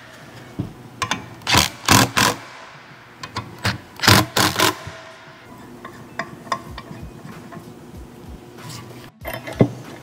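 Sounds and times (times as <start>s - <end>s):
impact wrench hammering bursts: 1.0s - 5.5s.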